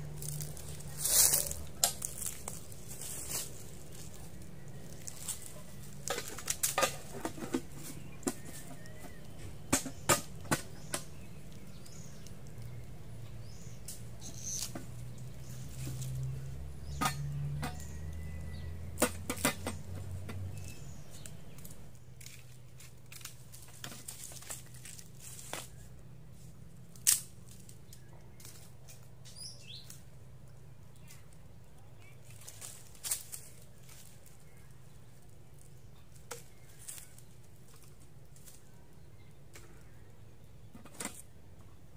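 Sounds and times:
wood fire crackling: 0:00.0 - 0:07.4.

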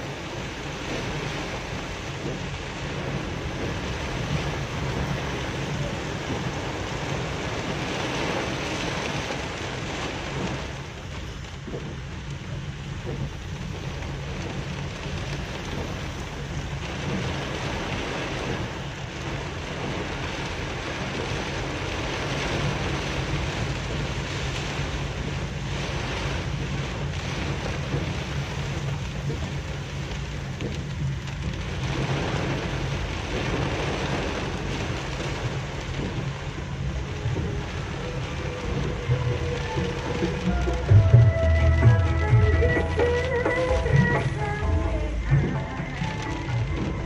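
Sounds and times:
heavy rain on car roof: 0:00.0 - 0:47.0
low vehicle hum: 0:00.0 - 0:47.0.

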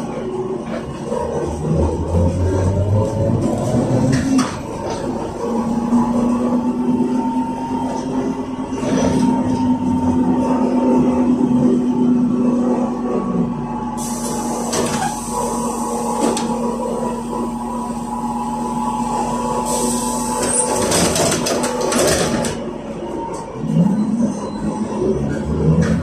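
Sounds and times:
vehicle running noise: 0:00.0 - 0:26.0
hiss: 0:14.0 - 0:16.3, 0:19.6 - 0:20.3.

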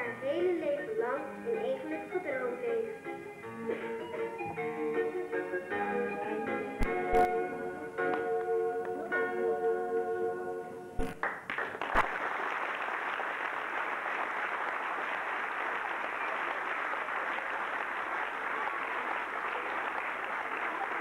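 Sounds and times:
audience applauding: 0:11.2 - 0:21.0.

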